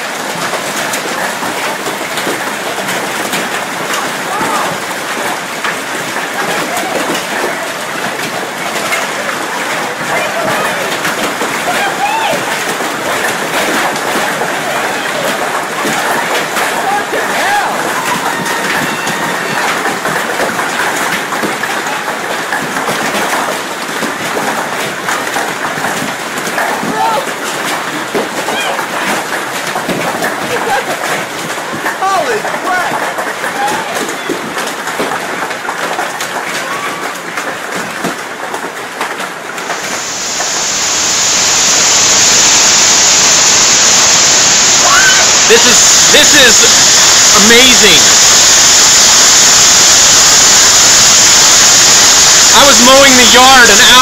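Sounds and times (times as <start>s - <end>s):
hail clattering on tarp: 0.0s - 39.8s.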